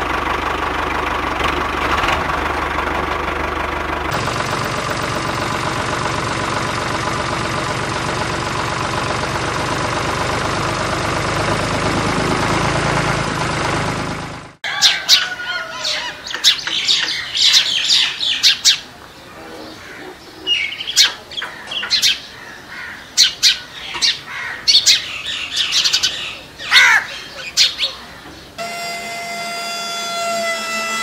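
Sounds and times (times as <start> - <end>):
birds chirping: 14.7 - 28.7
small motor whining: 28.6 - 31.0.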